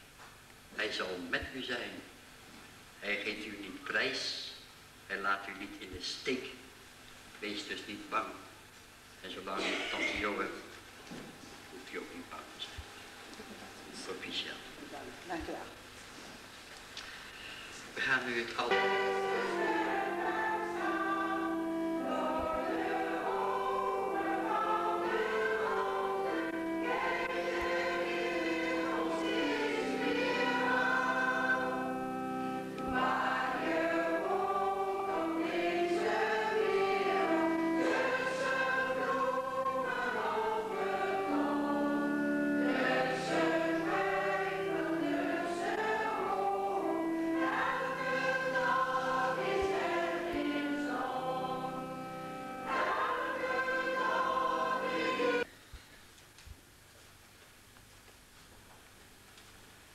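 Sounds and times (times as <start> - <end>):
choir singing slow song: 18.6 - 55.5.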